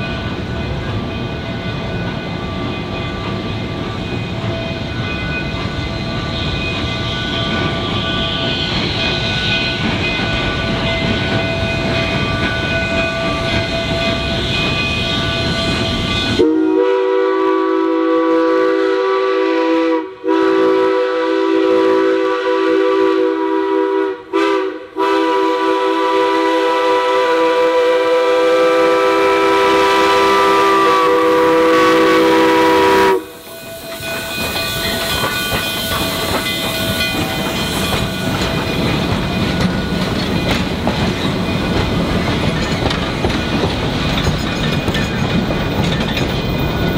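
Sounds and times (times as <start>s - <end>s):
train running noise: 0.0s - 46.9s
steam whistle blasts: 16.0s - 35.0s.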